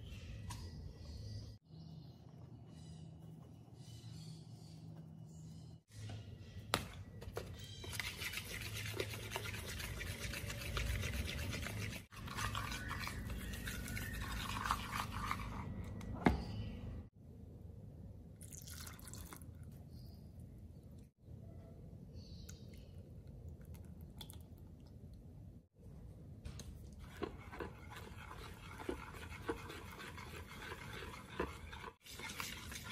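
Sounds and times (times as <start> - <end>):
whisk beating batter in bowl: 7.9 - 15.6, 27.0 - 32.9.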